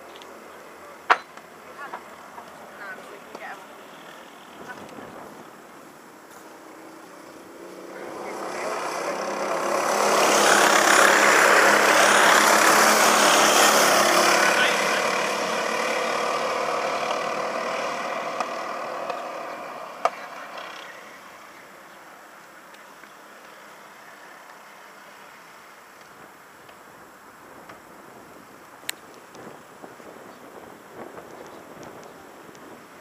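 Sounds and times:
kart engines passing by: 0:00.0 - 0:05.9, 0:06.5 - 0:27.0.

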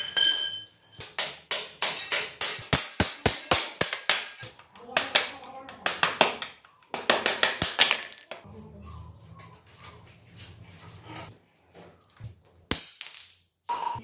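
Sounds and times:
ringing metal clang: 0:00.0 - 0:01.1
steel parts clinking and clanking: 0:07.4 - 0:08.4.

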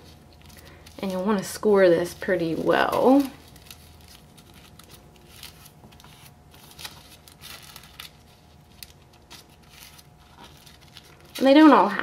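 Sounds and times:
tissue paper rustling and crinkling: 0:00.0 - 0:12.0.

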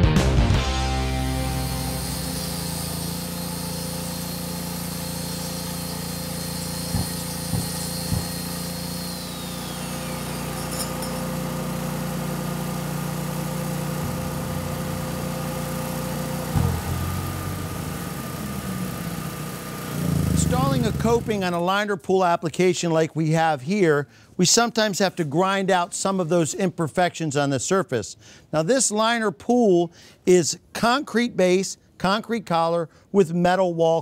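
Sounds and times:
motor whine winding down: 0:00.7 - 0:21.6
concrete grinder grinding: 0:01.1 - 0:21.6.

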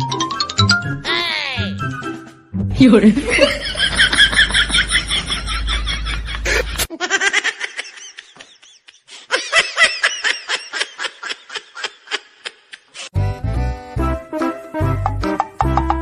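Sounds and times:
music: 0:00.0 - 0:03.2, 0:13.2 - 0:16.0.

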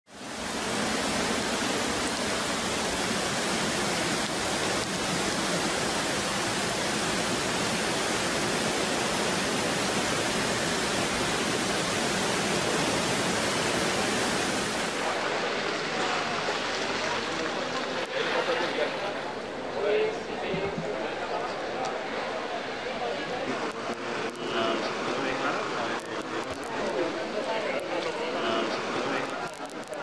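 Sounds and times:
floodwater rushing: 0:00.1 - 0:19.8.

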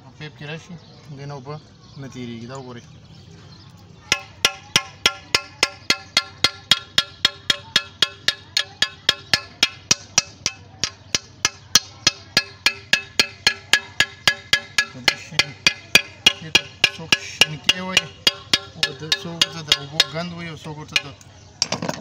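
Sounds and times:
hammer tapping on metal pipe: 0:04.1 - 0:21.3.

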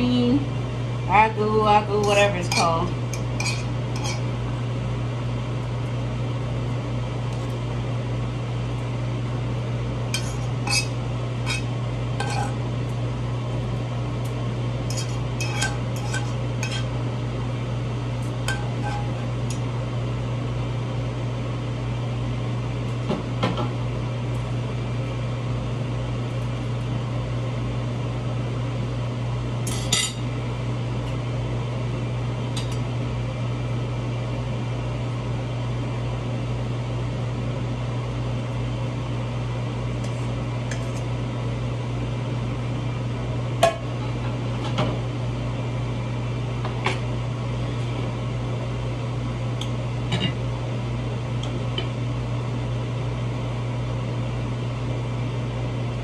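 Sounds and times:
steady low hum: 0:00.0 - 0:56.0
utensil scraping a frying pan: 0:02.4 - 0:04.3, 0:10.2 - 0:12.6, 0:14.9 - 0:17.0, 0:18.5 - 0:19.3.

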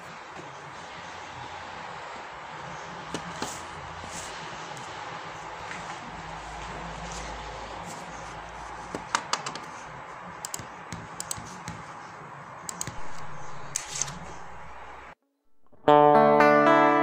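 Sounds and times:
amplifier hiss and hum: 0:12.0 - 0:16.0.

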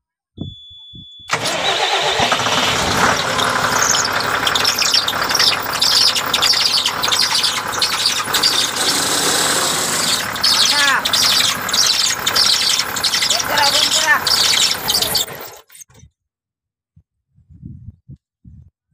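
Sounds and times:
high warning beep: 0:00.4 - 0:01.4
drive belt squealing chirps: 0:00.4 - 0:15.9
diesel engine running: 0:01.3 - 0:15.8.

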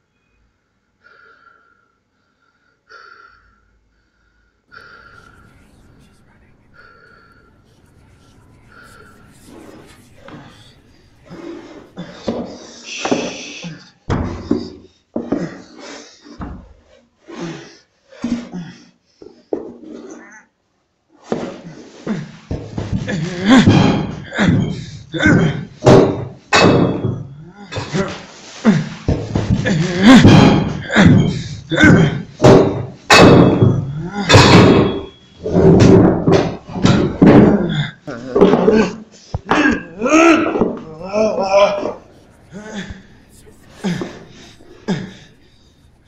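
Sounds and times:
person making wordless sounds: 0:04.8 - 0:13.8, 0:36.8 - 0:46.0
person crying out or grunting: 0:37.5 - 0:43.0.

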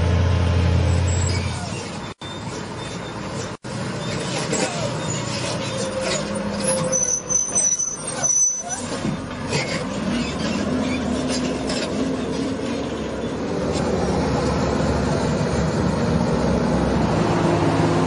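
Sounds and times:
truck diesel engine under load: 0:00.0 - 0:18.0
high squeal: 0:00.8 - 0:11.3.

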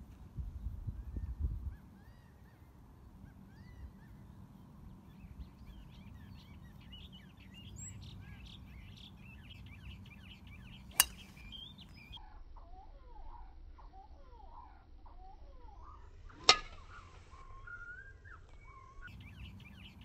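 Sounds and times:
outdoor background noise: 0:00.0 - 0:20.0
small birds chirping: 0:00.0 - 0:20.0
golf club striking ball: 0:10.9 - 0:11.5, 0:16.4 - 0:17.0.

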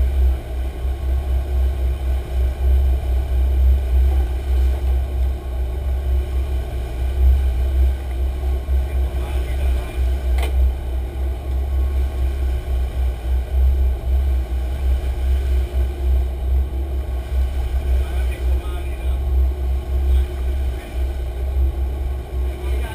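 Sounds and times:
boat engines rumbling: 0:00.0 - 0:22.9
sharp click: 0:10.3 - 0:10.6.

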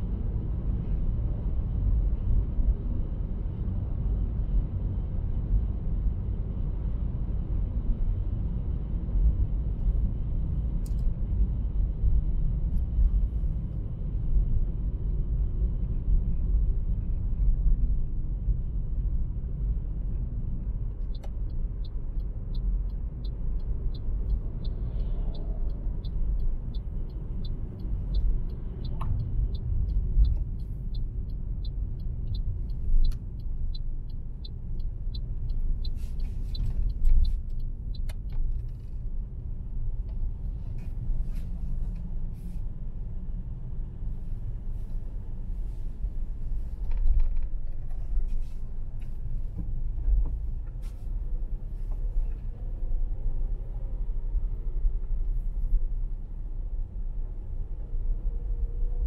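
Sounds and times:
car tyre and engine rumble: 0:00.0 - 0:59.0
light regular ticking: 0:21.1 - 0:38.8.

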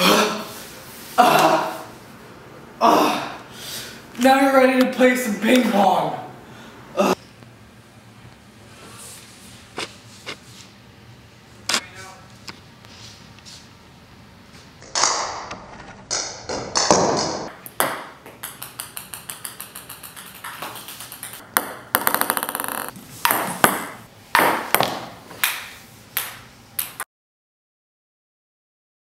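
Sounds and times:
table tennis ball bouncing: 0:16.2 - 0:27.0.

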